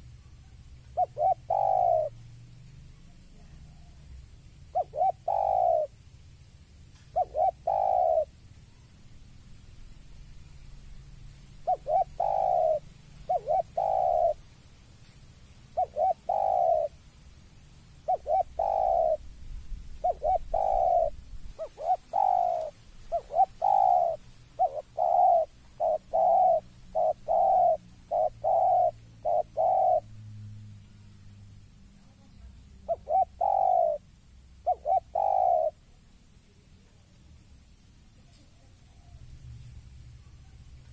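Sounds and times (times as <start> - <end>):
dove cooing: 0.0 - 2.2, 3.0 - 6.0, 6.9 - 8.8, 11.5 - 14.4, 15.7 - 17.0, 18.0 - 19.3, 19.9 - 30.2, 32.0 - 36.0.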